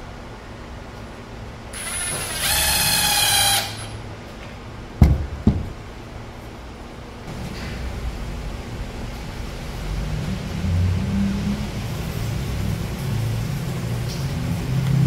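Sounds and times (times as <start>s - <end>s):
impact driver driving a screw: 1.8s - 4.0s
sharp thumps: 5.0s - 5.8s.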